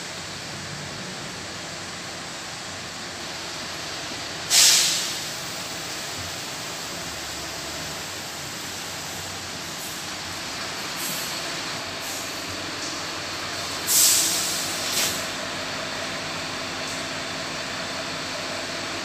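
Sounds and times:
steady bus background noise: 0:00.0 - 0:19.0
compressed air hiss: 0:04.5 - 0:05.9, 0:11.0 - 0:12.5, 0:13.6 - 0:15.4.

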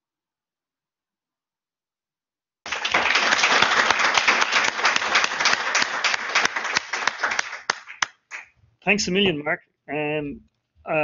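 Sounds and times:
audience applauding: 0:02.7 - 0:08.5.

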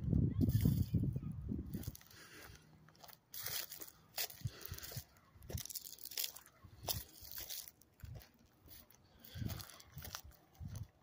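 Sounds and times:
footsteps on dry leaves and gravel: 0:00.4 - 0:01.0, 0:01.7 - 0:11.0.

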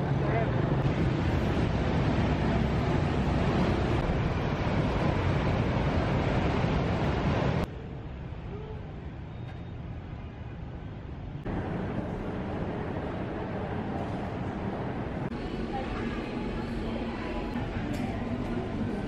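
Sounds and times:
motorbikes and bus traffic: 0:00.0 - 0:19.0.

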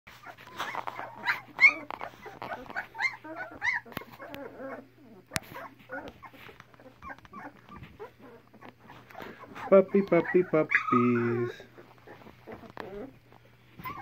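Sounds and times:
puppies whimpering and squeaking: 0:00.1 - 0:14.0.

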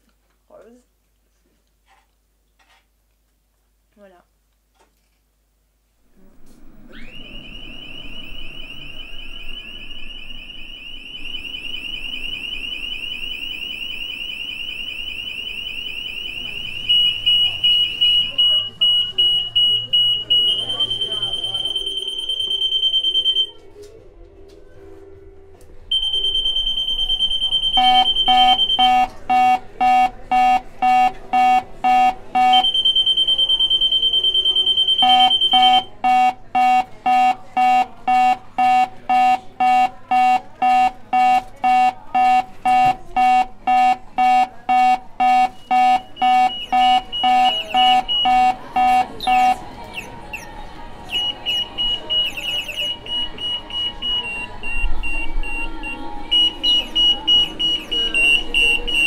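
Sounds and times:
security gate alarm beeping: 0:06.8 - 0:23.6, 0:25.9 - 0:59.0.

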